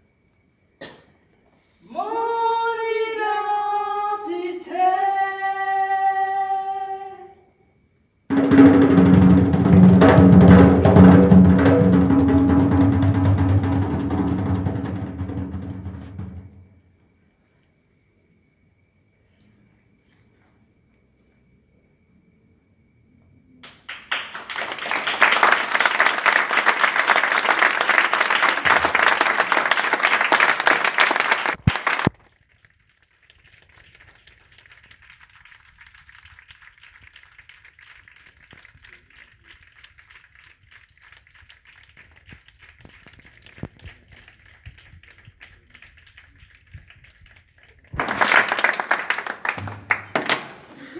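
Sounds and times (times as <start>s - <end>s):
audience applauding: 23.6s - 32.2s, 32.9s - 50.9s
scattered clapping: 23.6s - 50.7s.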